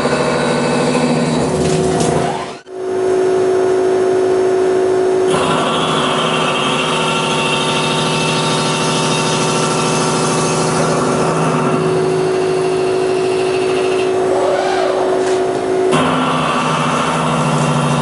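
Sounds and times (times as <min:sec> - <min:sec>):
machining centre humming and whining: 0:00.0 - 0:18.0
wavering tone: 0:14.0 - 0:15.9.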